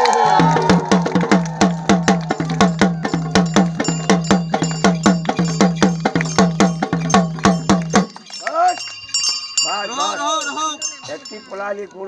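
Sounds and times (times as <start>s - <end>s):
fast drumming: 0.3s - 8.2s.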